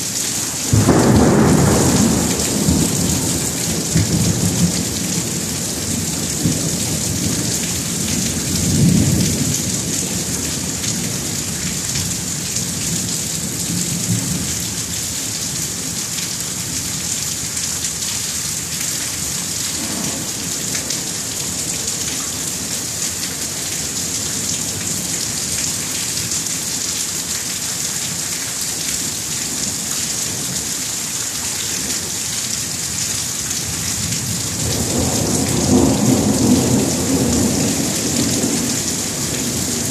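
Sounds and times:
low rolling thunder: 0.7s - 11.6s, 34.0s - 39.9s.

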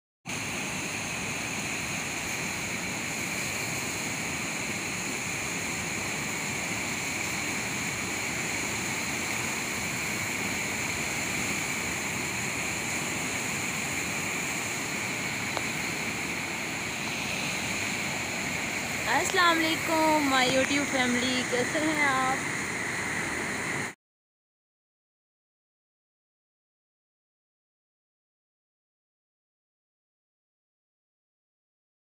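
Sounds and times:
turbulent water rushing: 0.3s - 24.0s.

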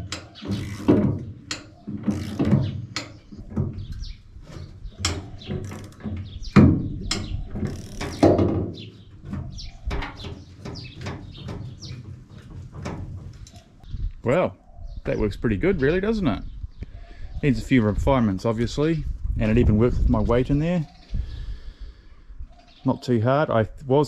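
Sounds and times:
hand winch clicking and clanking: 0.0s - 8.6s
metal knocks: 0.0s - 13.8s.

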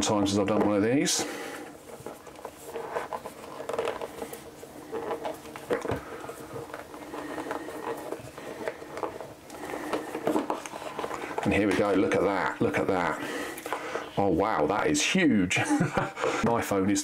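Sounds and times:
cardboard box scratching: 0.0s - 14.2s
paper rustling: 0.0s - 14.3s.

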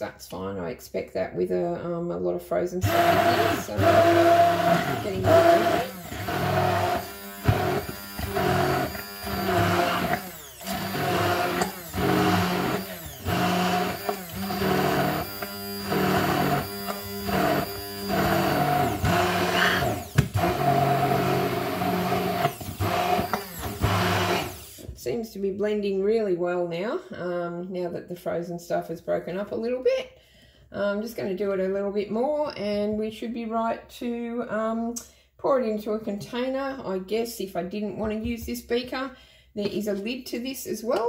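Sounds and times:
immersion blender chopping ice: 2.8s - 25.0s.

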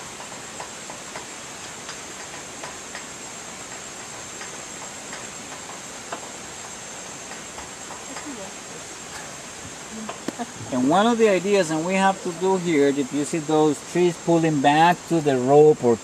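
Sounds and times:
gondola cable hiss: 0.0s - 16.0s
light irregular clicks: 3.7s - 9.3s.

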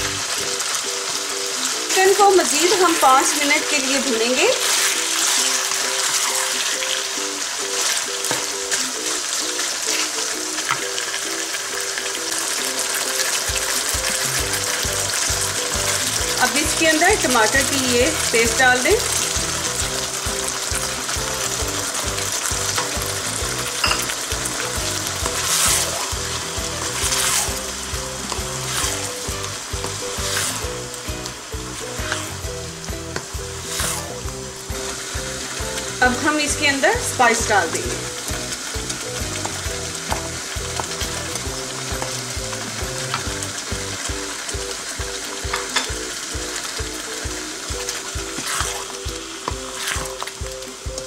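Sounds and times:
chicken sizzling in hot oil: 0.0s - 51.0s
soft background music: 0.0s - 51.0s
wooden spatula stirring in wok: 13.2s - 36.4s, 47.2s - 50.4s
wooden spatula stirring: 23.9s - 27.6s, 28.2s - 30.7s, 31.7s - 32.4s, 33.1s - 34.2s, 47.8s - 50.3s.

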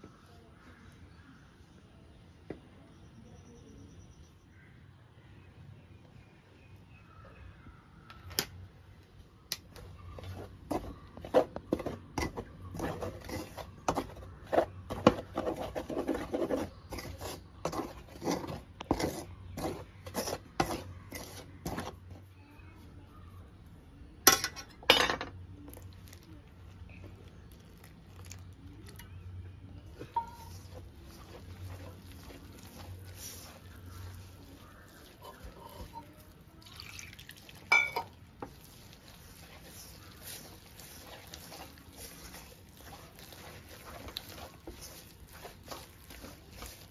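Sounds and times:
utensils clinking against dishes: 24.3s - 25.3s, 30.0s - 33.5s, 37.7s - 38.2s.

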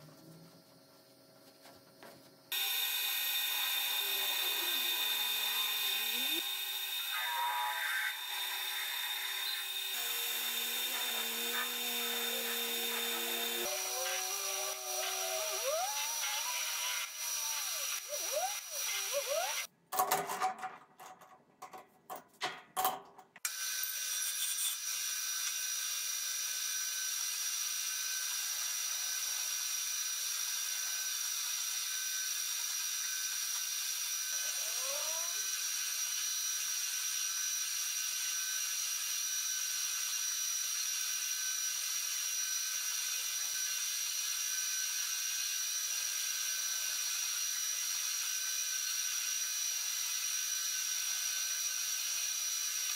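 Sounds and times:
cutting tool hissing: 2.5s - 19.7s, 23.5s - 52.9s
metal lathe turning: 2.5s - 19.7s
thin high whine: 2.5s - 19.7s.

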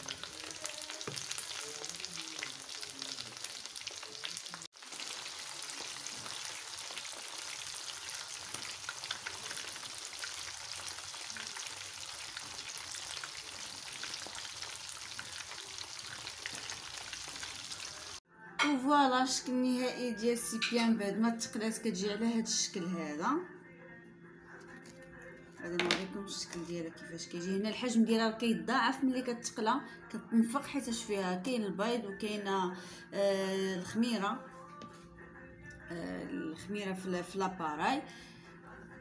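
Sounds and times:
food deep-frying in oil: 0.0s - 18.2s.

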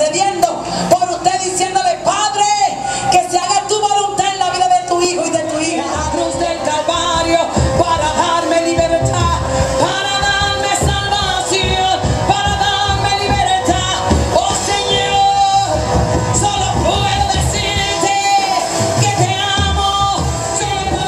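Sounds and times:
worship band through loudspeakers: 0.0s - 21.0s
lead singer: 2.8s - 21.0s
steady drum beat: 6.0s - 21.0s.

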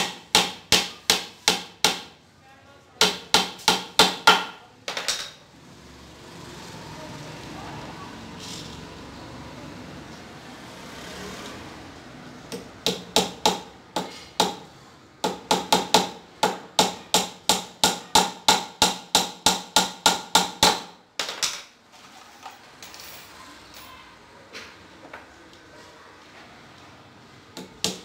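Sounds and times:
hammer striking wooden panel: 0.0s - 2.1s, 3.0s - 4.6s, 12.5s - 14.6s, 15.2s - 21.0s, 27.6s - 28.0s.

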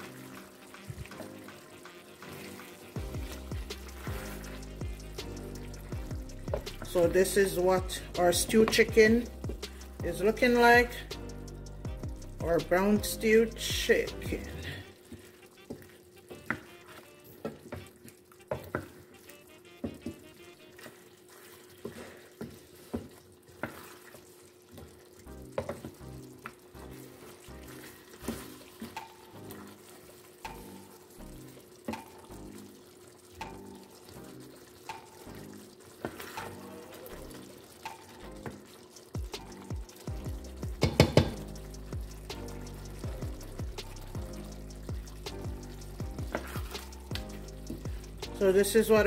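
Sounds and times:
wooden spoon scraping a pan: 0.0s - 7.0s, 14.5s - 25.0s, 26.9s - 29.0s, 35.9s - 38.8s, 46.2s - 48.1s
stew sizzling: 0.0s - 49.0s.

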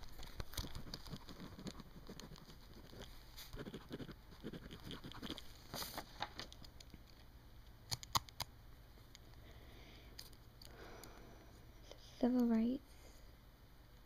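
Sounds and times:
pen scratching on paper: 0.7s - 5.5s.

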